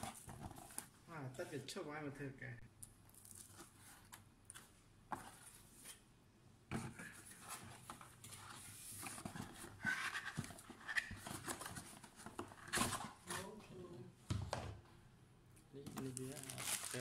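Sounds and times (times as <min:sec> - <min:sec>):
cardboard packaging being handled: 0:00.0 - 0:01.0, 0:06.7 - 0:13.6, 0:16.0 - 0:17.0.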